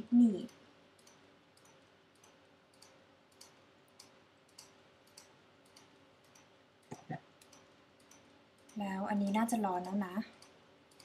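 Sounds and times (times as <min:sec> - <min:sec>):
faint regular ticking: 0:00.0 - 0:11.0.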